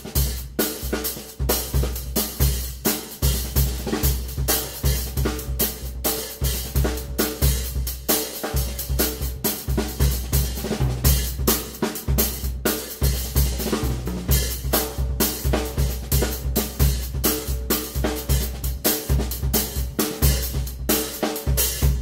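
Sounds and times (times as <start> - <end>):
drum kit playing: 0.0 - 22.0
bass drum thumps: 21.8 - 22.0.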